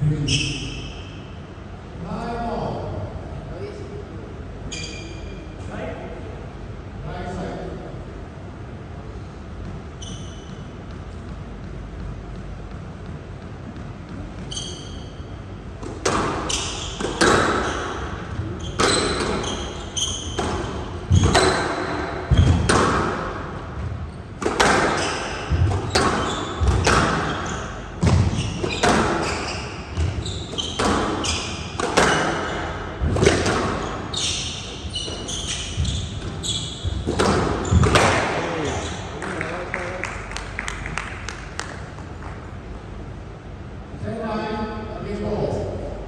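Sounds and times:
court shoes squeaking: 0.2 - 1.4, 4.6 - 5.7, 9.1 - 39.6
squash ball hitting racquets and walls: 9.4 - 39.4.

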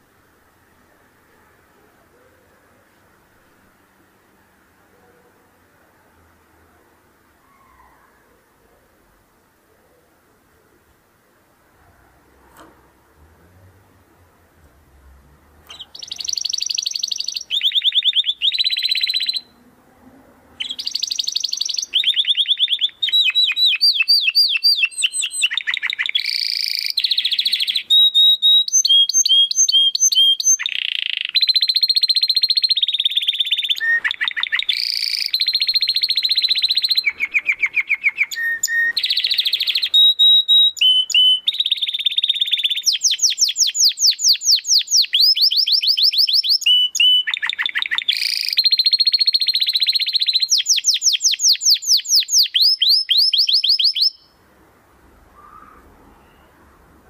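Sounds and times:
canary singing: 15.6 - 19.7, 20.6 - 54.4, 55.3 - 56.9.

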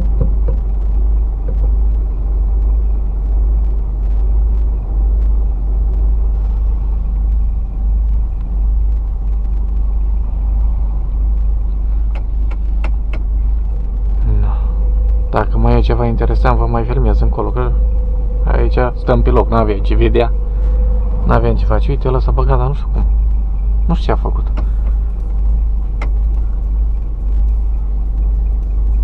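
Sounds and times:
truck engine idling: 0.0 - 29.0
sharp clicks: 11.3 - 15.4, 24.3 - 29.0.

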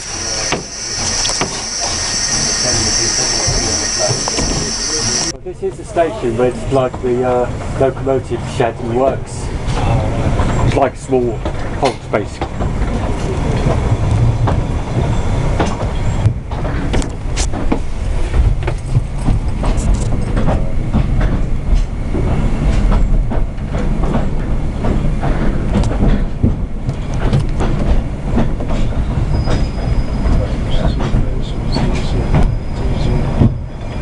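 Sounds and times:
thin high squeal: 0.0 - 5.3
railway carriage rumbling: 0.0 - 34.0
wheels clattering over rail joints: 6.6 - 34.0.

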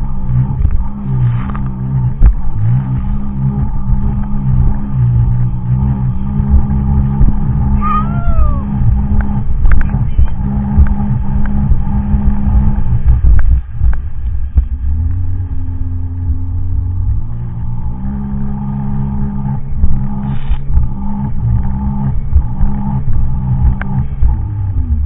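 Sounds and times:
watercraft engine running hard: 16.6 - 25.0.

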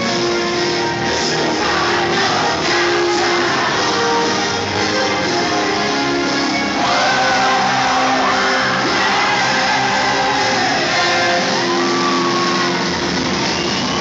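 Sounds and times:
live rock band: 0.0 - 14.0
crowd shouting and whooping: 6.6 - 14.0.

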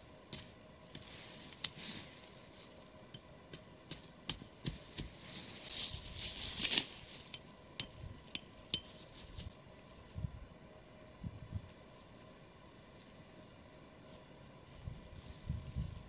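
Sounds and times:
dry leaves rustling and crunching: 0.3 - 3.0, 4.6 - 7.4, 8.8 - 9.6.

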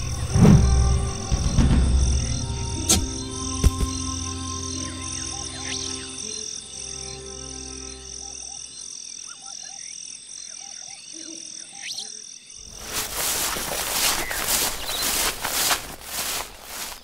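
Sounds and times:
frogs croaking: 0.0 - 17.0
high insect chirp pulsing: 0.0 - 17.0
feet rustling through grass: 12.6 - 17.0.

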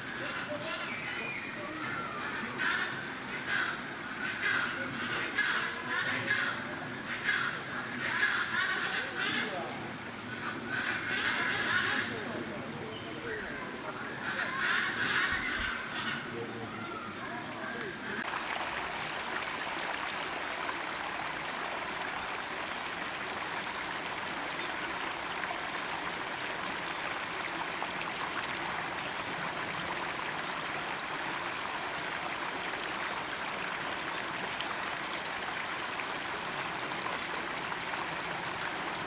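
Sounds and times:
water rushing over rocks: 16.6 - 39.0.

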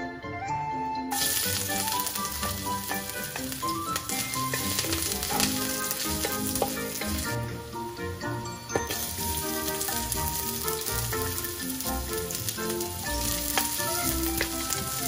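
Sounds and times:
background music melody: 0.0 - 15.0
food sizzling in hot oil: 1.1 - 15.0
wooden spatula clicks: 2.8 - 7.2, 13.5 - 14.9.

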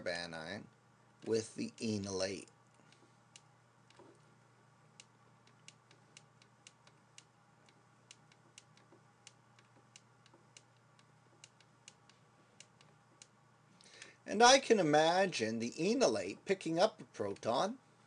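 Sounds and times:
faint low hum: 0.0 - 18.0
stylus tapping on tablet: 5.0 - 13.3.

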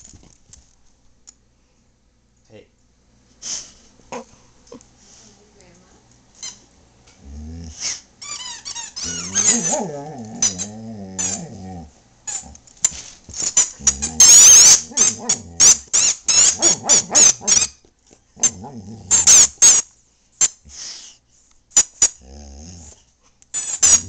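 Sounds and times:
dog grumbling: 7.2 - 8.0, 9.0 - 12.6, 13.7 - 17.6, 18.4 - 19.6, 22.2 - 23.0
squeaky toy squeaking: 8.2 - 9.8, 13.4 - 15.3, 15.9 - 17.8, 23.6 - 24.0.

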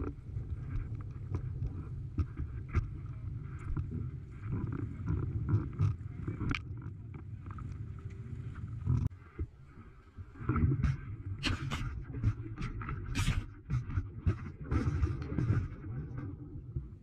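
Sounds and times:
wind and water noise: 0.0 - 17.0.

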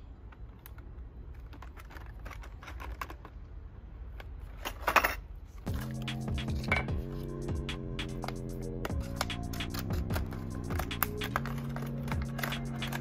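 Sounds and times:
background music: 5.7 - 13.0
plastic blister pack crackling: 8.9 - 13.0.

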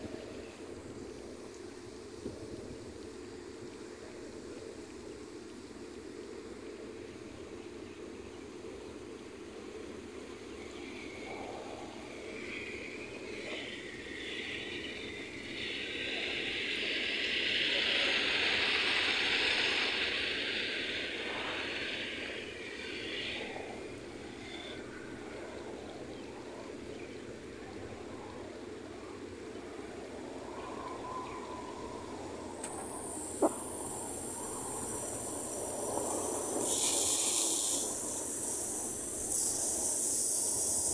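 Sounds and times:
lawn sprinklers spraying water: 8.6 - 40.9.

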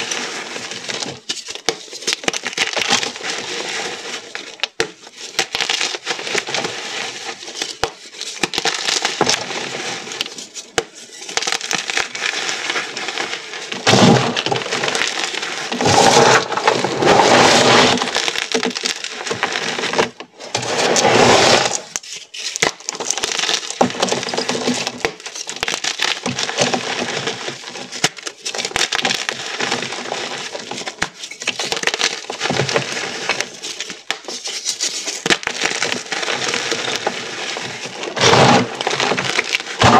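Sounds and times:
chalk crumbling and crunching: 0.0 - 39.9.

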